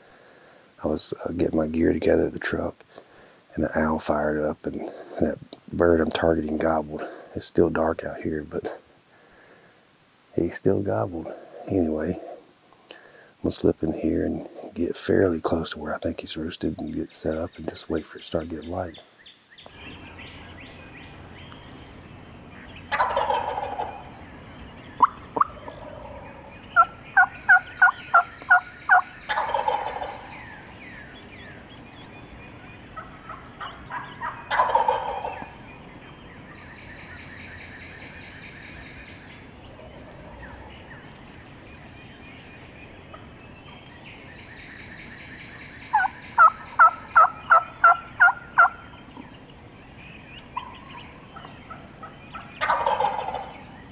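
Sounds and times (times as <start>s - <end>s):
turkey gobbling: 11.2s - 12.5s, 22.6s - 35.8s, 36.5s - 41.2s, 44.4s - 49.3s, 50.4s - 53.8s
turkey yelps: 22.9s - 24.2s, 25.0s - 30.7s, 32.9s - 35.6s, 45.9s - 48.9s, 50.5s - 51.1s, 51.7s - 53.7s.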